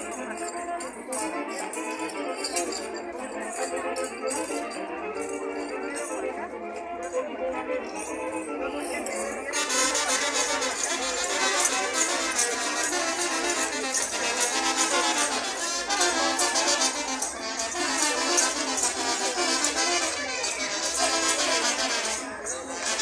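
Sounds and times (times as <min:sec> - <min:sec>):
bells jingling: 0:00.0 - 0:23.0
brass band playing dance music: 0:09.5 - 0:23.0.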